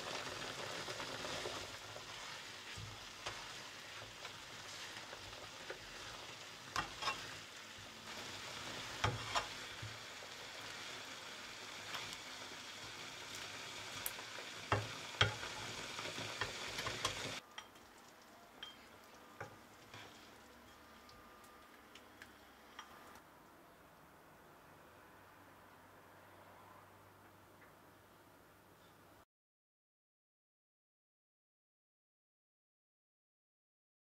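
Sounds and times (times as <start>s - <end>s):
stew hissing in a pan: 0.0s - 17.4s, 18.8s - 20.5s.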